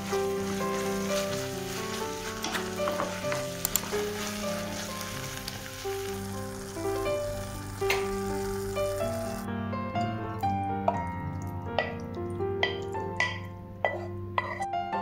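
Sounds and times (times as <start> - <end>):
food sizzling in a frying pan: 0.0 - 9.5.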